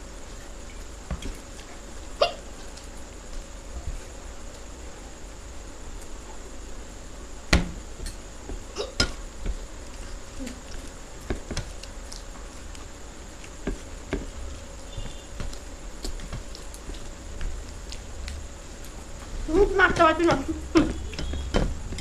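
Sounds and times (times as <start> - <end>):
puffed rice crackling: 9.2 - 22.0.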